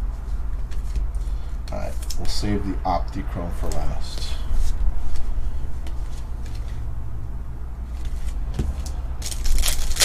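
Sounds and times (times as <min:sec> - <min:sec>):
steady low hum: 0:00.0 - 0:10.0
cards clicking and rustling: 0:00.6 - 0:02.4, 0:09.2 - 0:10.0
cards riffling: 0:08.2 - 0:10.0.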